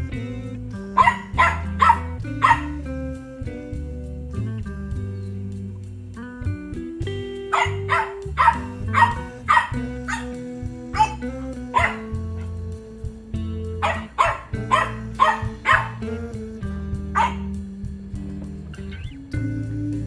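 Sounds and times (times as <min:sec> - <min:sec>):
guitar music: 0:00.0 - 0:20.0
puppy barking: 0:01.0 - 0:02.9, 0:07.5 - 0:12.2, 0:13.8 - 0:16.1, 0:17.1 - 0:17.6.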